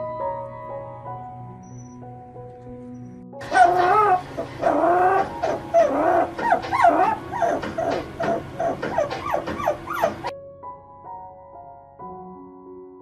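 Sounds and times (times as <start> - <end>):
puppy howling and whining: 3.4 - 10.3.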